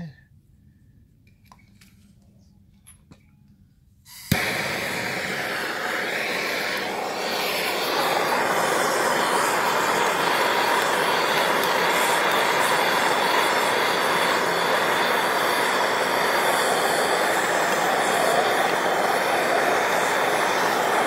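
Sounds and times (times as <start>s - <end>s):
gas torch igniting pop: 4.1s - 21.0s
torch flame hissing: 4.1s - 21.0s.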